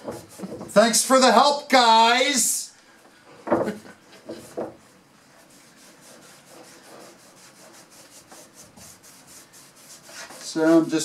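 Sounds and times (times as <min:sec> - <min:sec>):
cloth rag wiping wood: 0:04.6 - 0:11.0.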